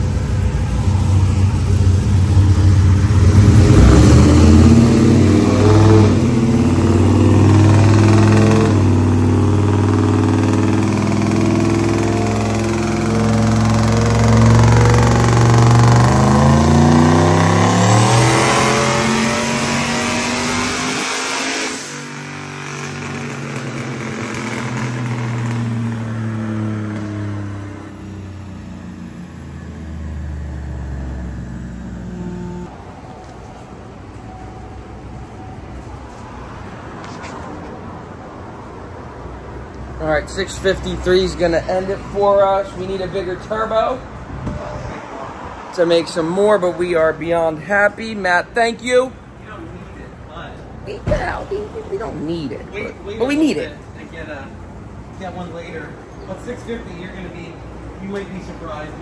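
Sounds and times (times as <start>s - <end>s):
dyno rollers slowing: 0.0s - 18.3s
engine revving at full throttle: 2.6s - 32.7s.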